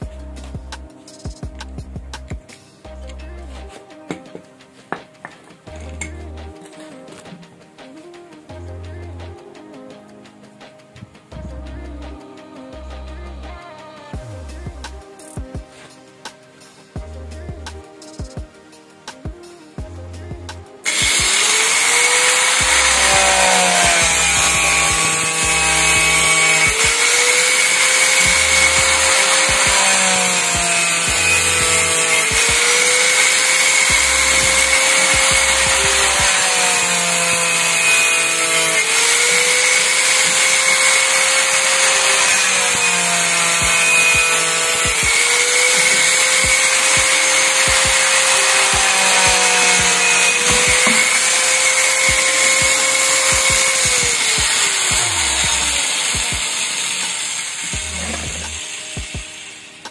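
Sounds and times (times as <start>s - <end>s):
angle grinder cutting plastic pipe: 20.9s - 59.9s.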